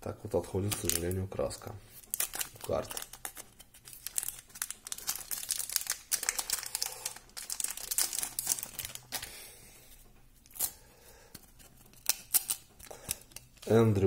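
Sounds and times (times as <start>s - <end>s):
foil wrapper crinkling and tearing: 0.5s - 1.2s, 2.0s - 9.4s, 11.7s - 14.0s.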